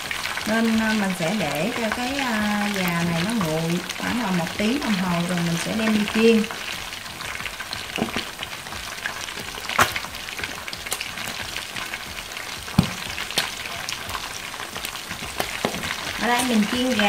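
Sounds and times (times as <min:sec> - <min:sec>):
oil sizzling: 0:00.0 - 0:17.0
loud cracks: 0:09.3 - 0:12.0, 0:12.6 - 0:16.5.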